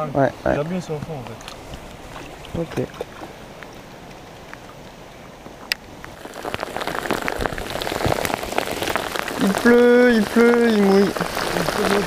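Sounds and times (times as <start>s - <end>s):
rain on lake surface: 0.0s - 12.0s.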